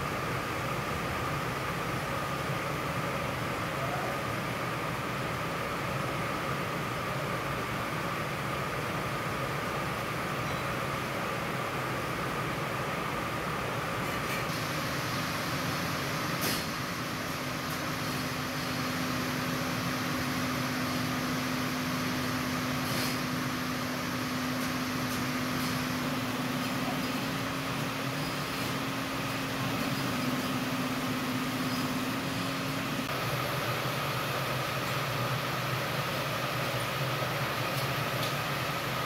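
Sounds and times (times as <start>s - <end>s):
factory machinery humming: 0.0s - 39.0s.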